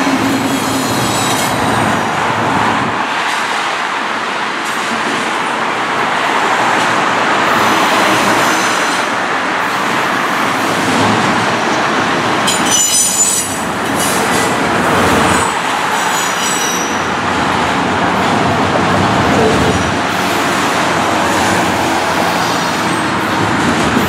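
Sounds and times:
cars passing on road: 0.0s - 24.0s
freight train rolling: 0.0s - 24.0s
train wheels squealing: 12.5s - 14.5s, 15.3s - 17.0s.

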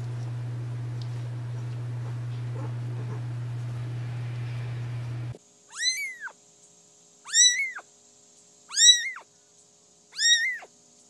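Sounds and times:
cat meowing: 5.7s - 6.4s, 7.3s - 7.8s, 8.7s - 9.2s, 10.2s - 10.7s.

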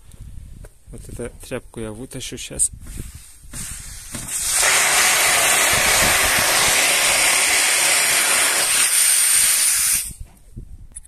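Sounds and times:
gas hissing from pipe valve: 3.0s - 10.2s.

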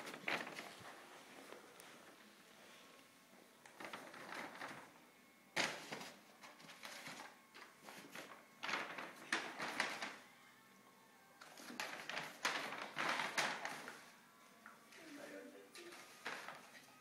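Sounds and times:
shopping bag rustling on floor: 0.0s - 2.1s, 3.7s - 5.0s, 5.6s - 10.2s, 11.4s - 14.2s, 14.9s - 17.0s.

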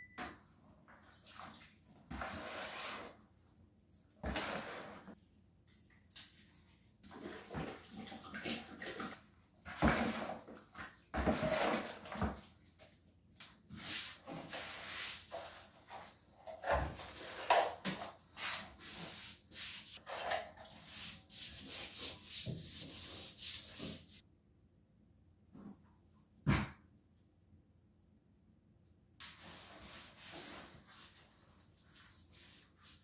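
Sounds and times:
hands stirring cement in bucket: 1.0s - 3.2s, 4.2s - 24.2s
rubbing and scraping of cement: 11.2s - 12.4s.

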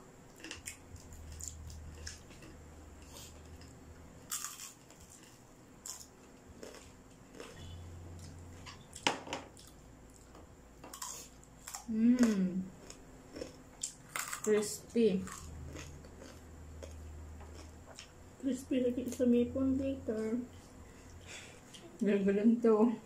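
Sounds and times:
people eating crunchy food: 0.3s - 22.0s
person humming: 11.9s - 12.7s.

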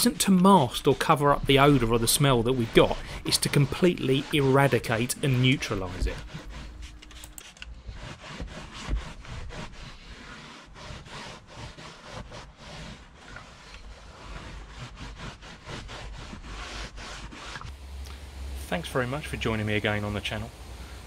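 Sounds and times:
cloth scrubbing carpet: 0.0s - 17.8s.

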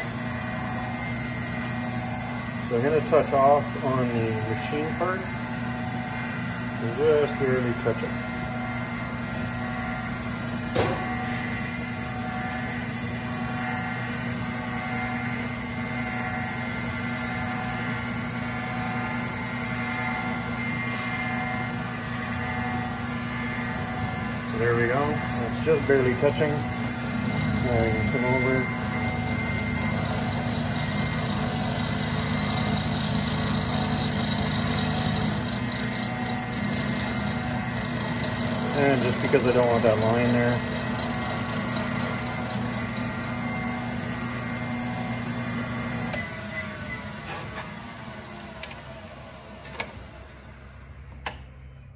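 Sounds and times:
lathe-mill running: 0.0s - 51.4s
faint high whine: 10.8s - 37.7s.

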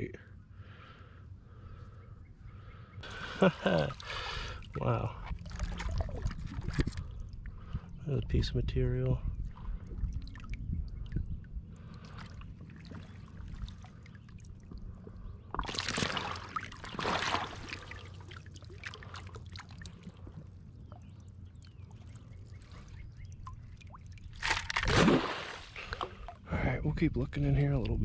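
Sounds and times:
water sloshing through a mesh sifter: 3.6s - 7.4s, 9.5s - 11.2s, 11.8s - 14.8s, 15.5s - 26.4s
water splash: 3.7s - 6.9s, 15.6s - 19.7s, 23.4s - 26.4s.

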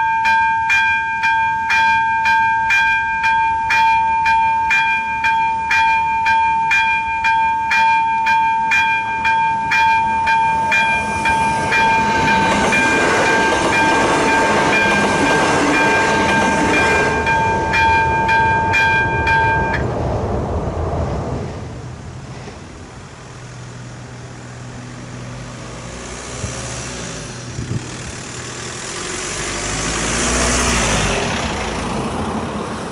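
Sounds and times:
level-crossing warning bell ringing: 0.0s - 19.8s
train wheels rushing on rails: 8.3s - 32.9s.

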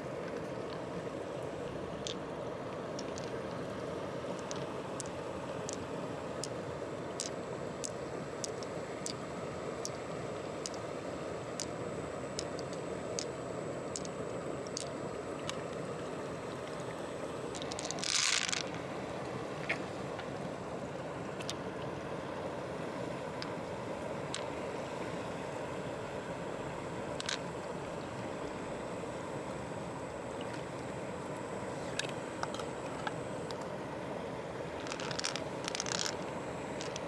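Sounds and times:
background hiss: 0.0s - 37.0s
pearls clicking into a palm: 3.0s - 3.3s, 4.4s - 5.8s, 7.2s - 9.2s, 10.6s - 10.8s, 12.4s - 13.3s, 13.9s - 15.6s, 17.6s - 18.8s, 27.2s - 27.4s, 34.8s - 36.2s, 36.8s - 37.0s.

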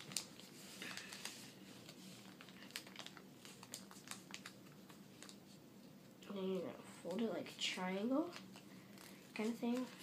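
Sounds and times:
paper rustling and crinkling: 0.0s - 5.6s, 8.2s - 10.0s.

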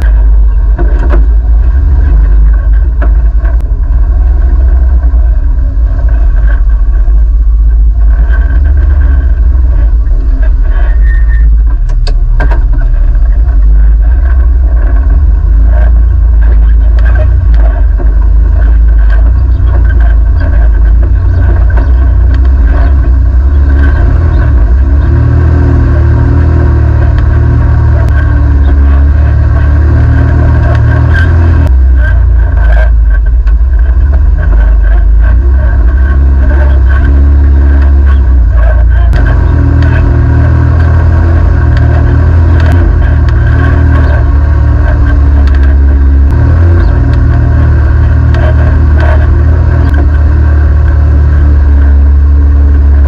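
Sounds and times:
vehicle clatter and knocks: 0.0s - 3.7s, 11.5s - 18.2s
utility vehicle engine running: 0.0s - 53.0s.

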